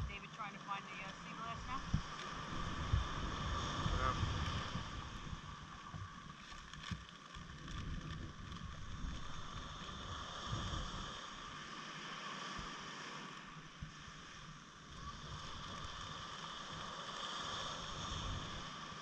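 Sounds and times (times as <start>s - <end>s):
wind buffeting microphone: 0.0s - 6.2s, 6.8s - 11.2s
faint hum: 0.0s - 6.5s.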